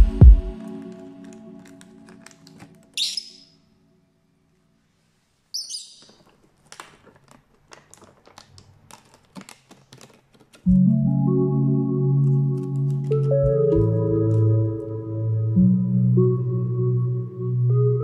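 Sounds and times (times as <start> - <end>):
background music: 0.0 - 3.6, 10.7 - 18.0
lovebird chirping: 3.0 - 3.7, 5.5 - 6.2.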